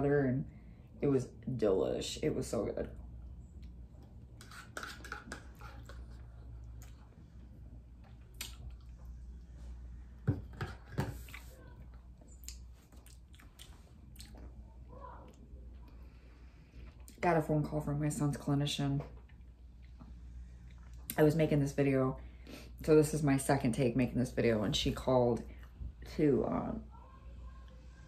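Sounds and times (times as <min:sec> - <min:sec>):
person chewing: 0:08.0 - 0:09.2, 0:11.2 - 0:14.6.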